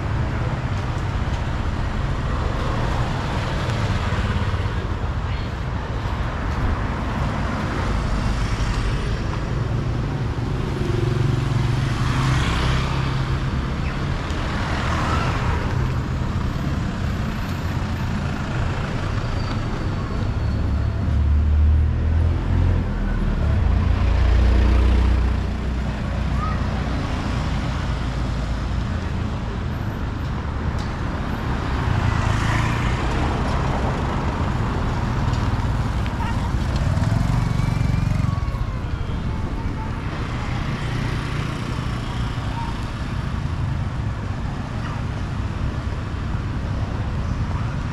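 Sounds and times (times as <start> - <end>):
low traffic rumble: 0.0 - 47.9
motorbikes passing: 30.5 - 47.9.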